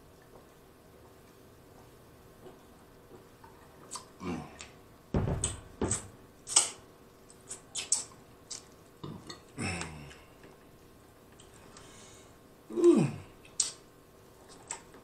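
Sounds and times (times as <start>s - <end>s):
wet lip smacks: 5.9s - 6.8s, 13.4s - 13.8s.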